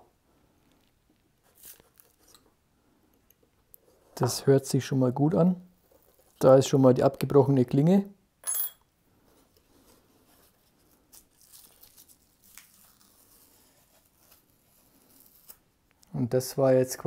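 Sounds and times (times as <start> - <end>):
tape tearing: 1.5 - 2.4, 11.1 - 15.6.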